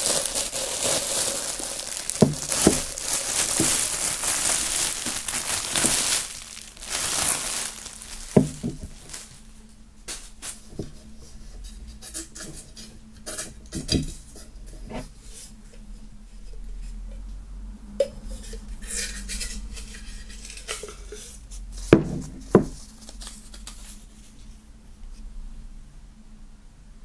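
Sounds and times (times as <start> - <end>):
plastic wrap crinkling: 0.0 - 11.0, 21.8 - 24.4
tankard knocks: 8.3 - 9.0, 22.0 - 22.8.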